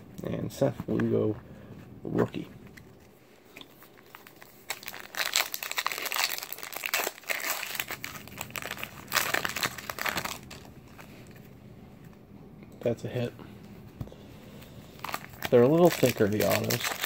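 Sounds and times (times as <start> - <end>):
foil wrapper crinkling: 3.7 - 11.4, 14.9 - 17.0.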